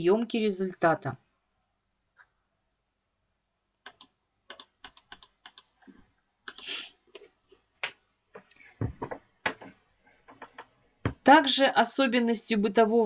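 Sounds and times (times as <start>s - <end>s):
computer keyboard keys clicking: 3.9s - 5.7s.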